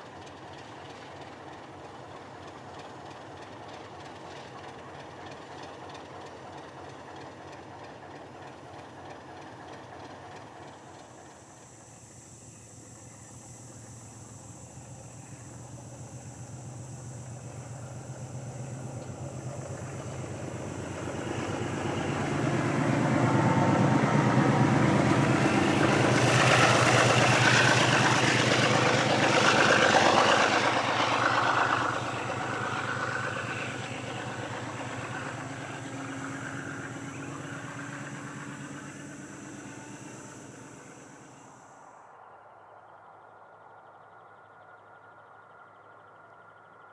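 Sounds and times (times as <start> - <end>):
diesel locomotives throbbing: 0.0 - 41.9.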